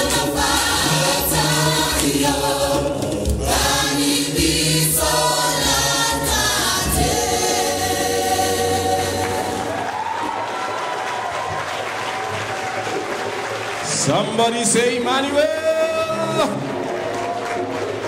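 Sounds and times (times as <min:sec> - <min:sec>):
gospel choir with instrumental backing: 0:00.0 - 0:10.4.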